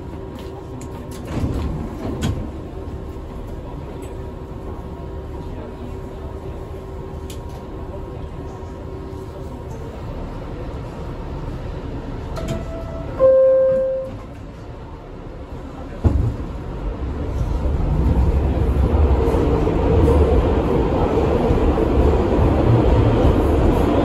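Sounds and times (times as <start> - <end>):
train rumble: 0.0 - 24.0
train doors shutting with a knock: 1.1 - 2.7, 12.3 - 14.6, 15.9 - 16.7.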